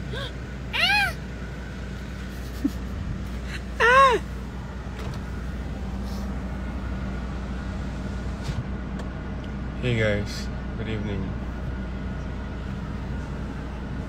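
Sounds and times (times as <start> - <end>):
cabin fan running: 0.0 - 14.0
car engine idling: 0.0 - 14.0
toddler squealing: 0.1 - 1.2.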